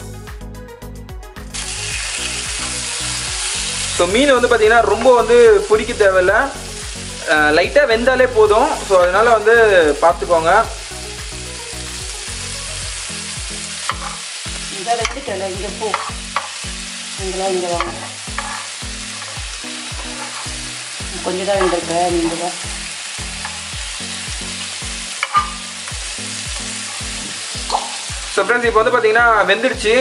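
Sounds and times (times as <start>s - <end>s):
fish sizzling in a pan: 1.5s - 30.0s
metal spoon scraping a pan: 13.8s - 14.3s, 15.0s - 16.8s, 17.6s - 22.1s, 23.4s - 23.7s, 25.1s - 28.1s.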